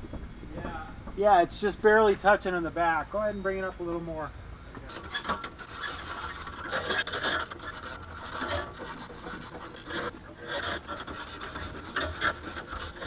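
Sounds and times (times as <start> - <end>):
keel scraping against hull: 4.9 - 13.0.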